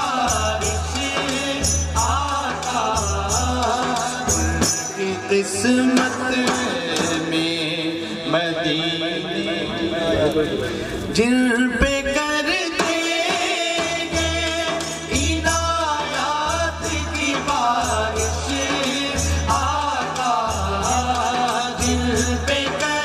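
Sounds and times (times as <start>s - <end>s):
men singing devotional song: 0.0s - 10.2s, 10.8s - 23.0s
hand drum rhythm: 11.8s - 23.0s.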